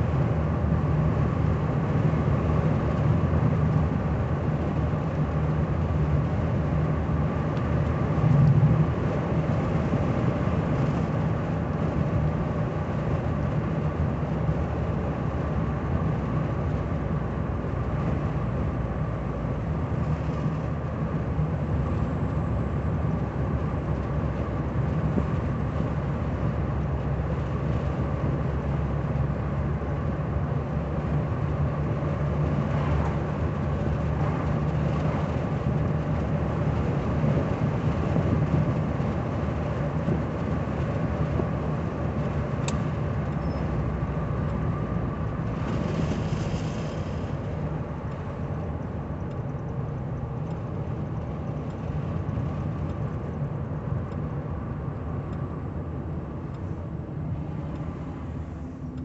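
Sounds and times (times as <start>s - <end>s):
car engine hum: 0.0s - 59.0s
tyre and road noise: 0.0s - 59.0s.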